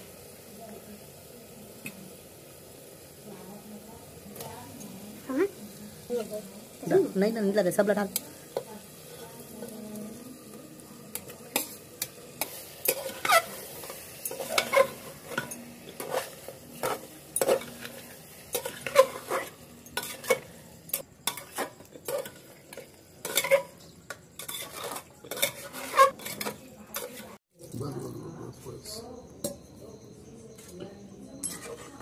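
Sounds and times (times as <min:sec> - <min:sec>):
food sizzling faintly: 0:00.0 - 0:27.4
metal ladle scraping a pot: 0:11.1 - 0:27.4, 0:31.4 - 0:32.0.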